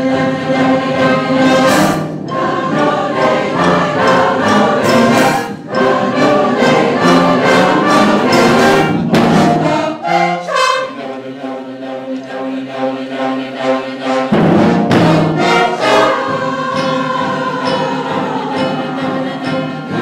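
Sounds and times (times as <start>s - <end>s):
band playing: 0.0s - 12.0s, 12.6s - 20.0s
choir singing: 0.0s - 20.0s
sharp percussive hits: 14.3s - 20.0s.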